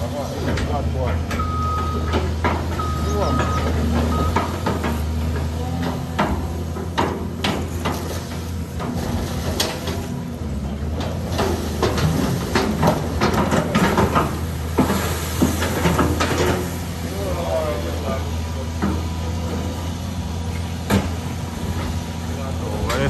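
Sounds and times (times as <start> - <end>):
low engine hum: 0.0 - 23.0.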